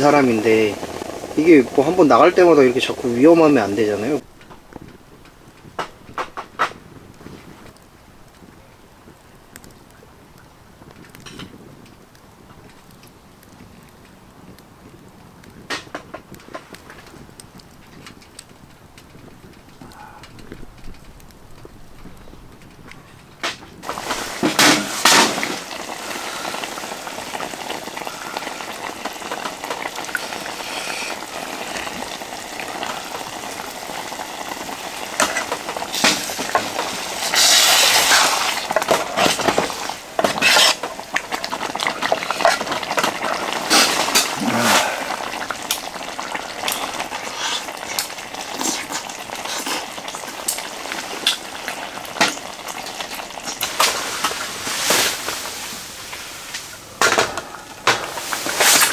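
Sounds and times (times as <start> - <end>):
food sizzling in a pan: 0.0 - 4.2, 23.8 - 58.9.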